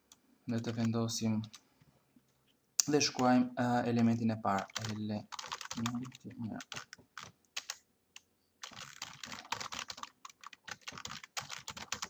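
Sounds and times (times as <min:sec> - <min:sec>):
typing on a computer keyboard: 0:00.5 - 0:01.6, 0:04.5 - 0:07.8, 0:08.6 - 0:12.0.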